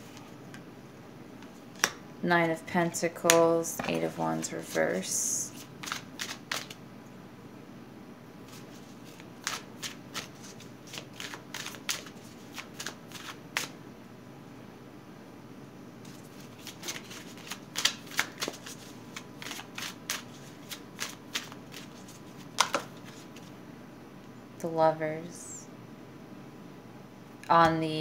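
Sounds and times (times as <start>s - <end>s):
cards shuffling: 5.5s - 6.8s, 8.5s - 13.8s, 16.1s - 23.5s.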